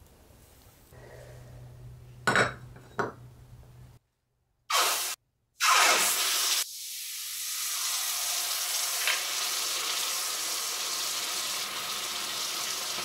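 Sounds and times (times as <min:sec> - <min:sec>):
hot metal sizzling in water: 0:04.7 - 0:13.0.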